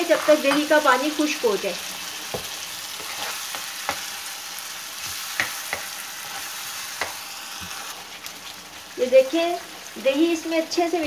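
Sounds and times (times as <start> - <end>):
food sizzling in a frying pan: 0.0 - 11.0
spoon tapping a pan: 0.4 - 0.8, 5.1 - 5.9
spoon stirring: 3.0 - 4.1.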